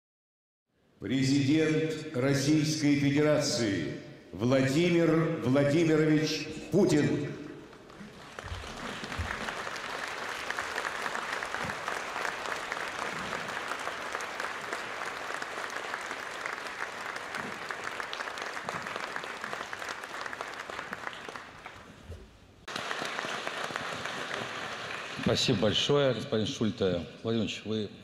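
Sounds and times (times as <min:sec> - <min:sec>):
audience applauding: 0:07.7 - 0:22.0, 0:22.7 - 0:25.8.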